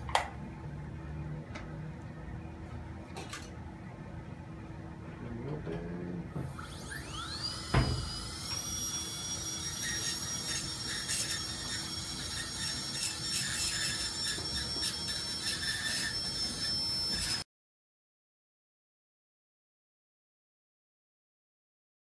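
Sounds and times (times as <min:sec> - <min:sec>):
dental drill whine: 0:06.4 - 0:17.5.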